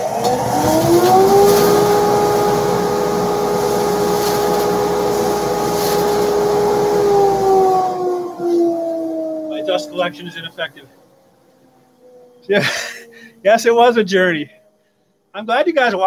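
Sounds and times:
lathe motor whine: 0.0 - 12.5.

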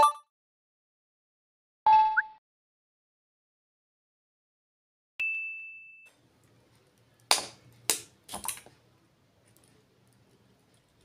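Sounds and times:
bell-like ding: 5.2 - 6.2.

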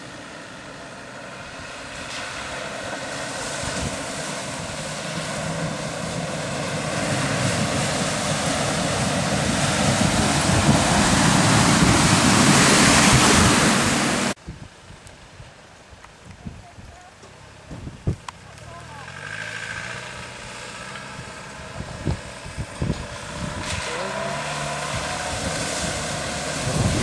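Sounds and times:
water surging and splashing: 0.0 - 14.4, 18.4 - 27.0
vehicle engine running: 17.2 - 27.0.

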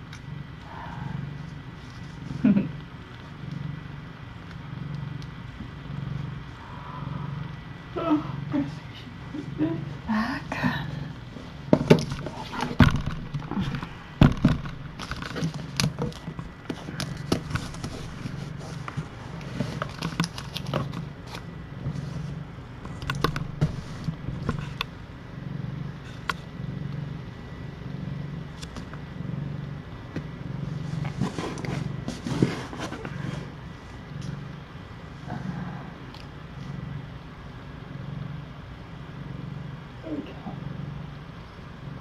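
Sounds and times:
cat purring: 0.0 - 42.0
kittens rustling and clicking: 10.8 - 24.9, 30.1 - 33.5.

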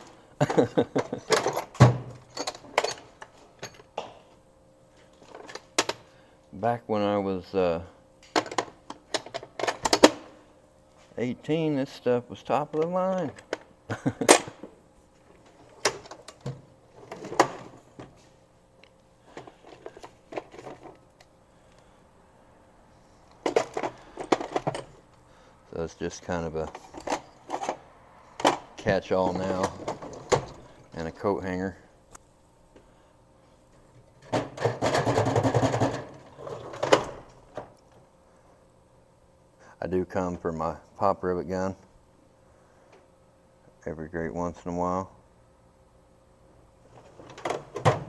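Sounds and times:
metal drawers opening and shutting: 0.0 - 3.9, 8.3 - 10.3, 15.6 - 17.8, 28.4 - 30.8, 34.2 - 37.7, 46.9 - 48.0
hand rummaging among tools: 0.0 - 4.0, 19.3 - 21.1, 23.4 - 25.0, 26.5 - 27.8, 28.4 - 31.1
tools clanking in drawer: 0.5 - 3.9.

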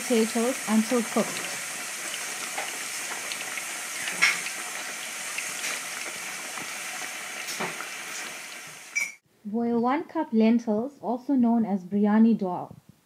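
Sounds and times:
potatoes deep-frying in oil: 0.0 - 9.2.

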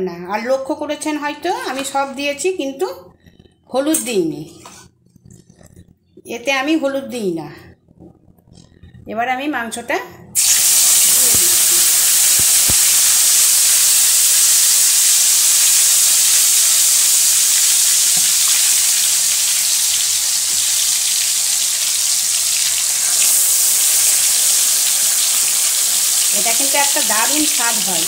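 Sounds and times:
meat sizzling in hot oil: 10.4 - 28.0.

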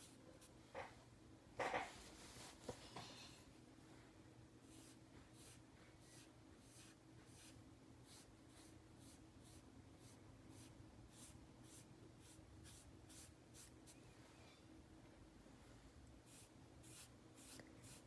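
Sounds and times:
faint low hum: 0.0 - 18.0
sponge brushing on paper: 4.7 - 14.0, 16.2 - 18.0.

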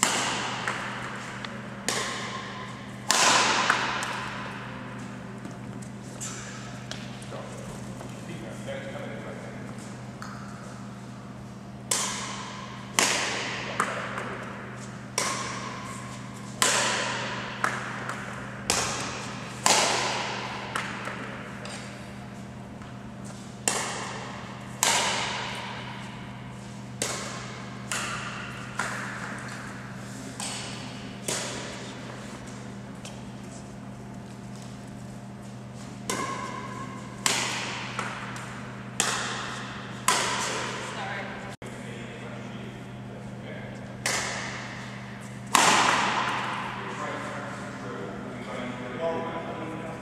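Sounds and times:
rackets hitting shuttlecock: 0.0 - 7.4, 11.8 - 22.2, 22.8 - 33.4, 35.4 - 41.1, 43.9 - 47.2
steady low hum: 0.0 - 50.0.

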